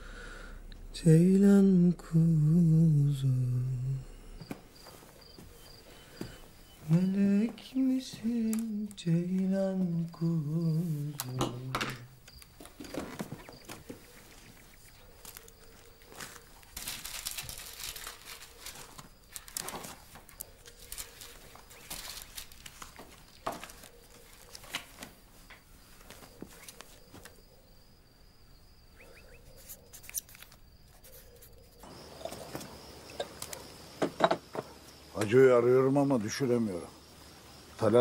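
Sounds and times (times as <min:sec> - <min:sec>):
faint steady hum: 0:00.0 - 0:12.8
album pages rustling: 0:06.8 - 0:27.4, 0:29.8 - 0:31.6.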